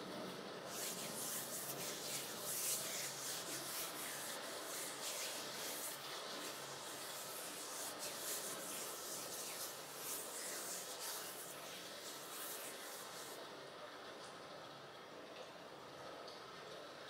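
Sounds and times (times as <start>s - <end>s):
palms rubbing together: 0.7s - 13.4s.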